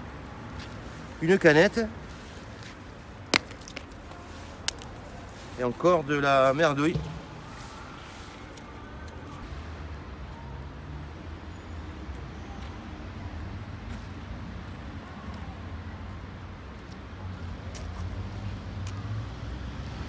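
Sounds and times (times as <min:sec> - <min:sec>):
road traffic rumble: 0:00.0 - 0:20.0.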